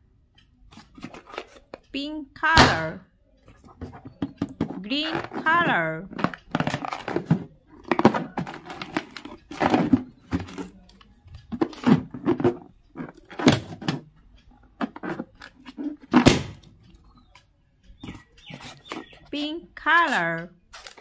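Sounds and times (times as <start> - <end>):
balloon thumps: 16.0 - 16.6.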